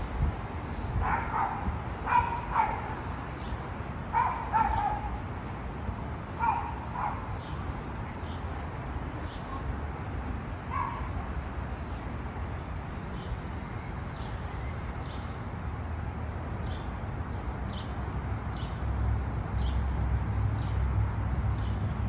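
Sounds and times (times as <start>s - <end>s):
dog barking: 1.0s - 3.0s, 4.1s - 5.2s, 6.4s - 7.3s.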